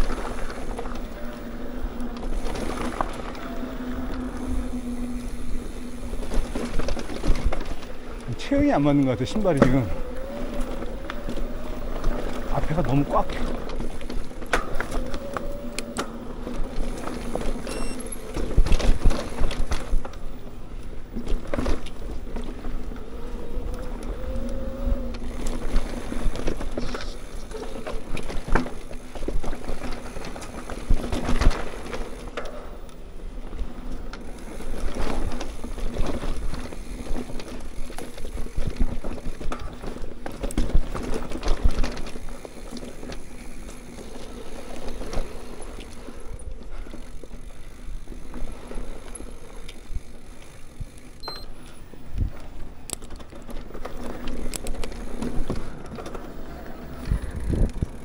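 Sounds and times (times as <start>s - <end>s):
bike clattering over bumps: 0.0s - 51.2s, 51.9s - 58.0s
bike tyre hum: 0.0s - 58.0s
wind on microphone: 56.4s - 58.0s.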